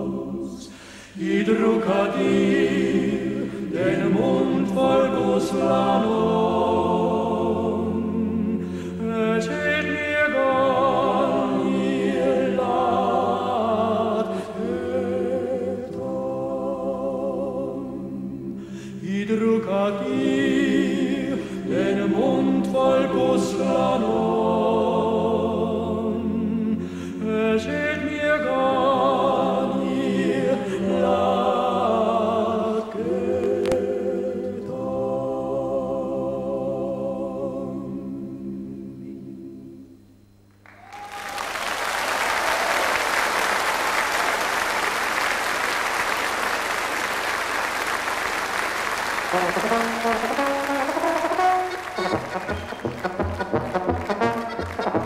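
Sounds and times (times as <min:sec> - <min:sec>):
mixed choir singing folk song: 0:00.0 - 0:40.0.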